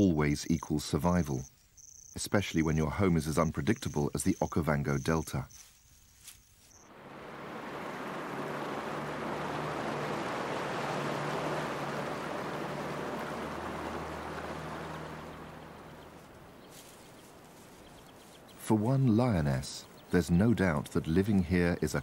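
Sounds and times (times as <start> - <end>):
low engine drone: 6.9 - 16.6
splashing water: 7.0 - 18.1.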